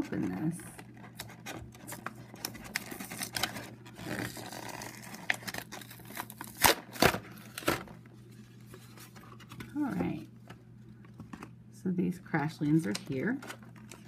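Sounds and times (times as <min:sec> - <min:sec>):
plastic blister pack crinkling: 0:00.1 - 0:09.9, 0:12.8 - 0:14.0.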